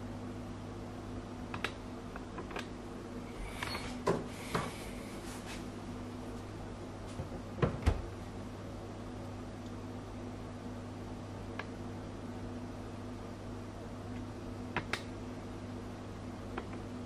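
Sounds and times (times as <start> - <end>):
steady low hum: 0.0 - 17.0
fridge door clicks and rustle: 7.2 - 8.2
fridge door knocking shut: 7.6 - 8.1.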